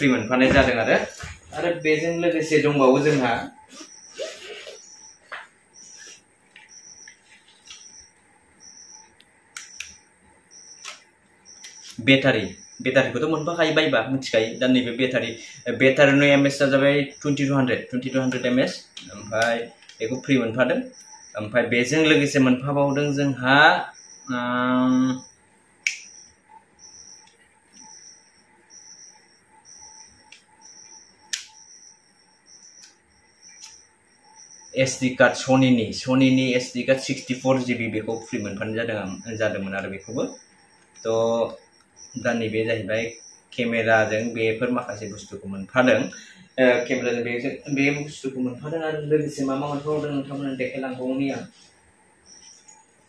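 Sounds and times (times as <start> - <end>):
cricket chirping: 0.0 - 53.0
high beep: 11.5 - 18.7.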